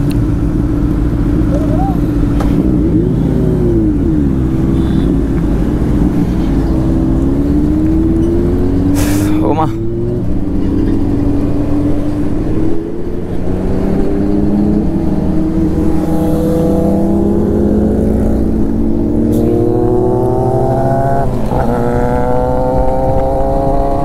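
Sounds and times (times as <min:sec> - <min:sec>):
motorcycle engine accelerating: 0:00.0 - 0:24.0.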